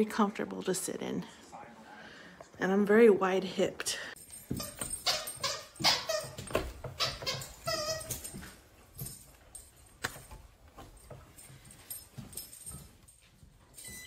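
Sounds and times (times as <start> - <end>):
dog whining: 4.6 - 8.5.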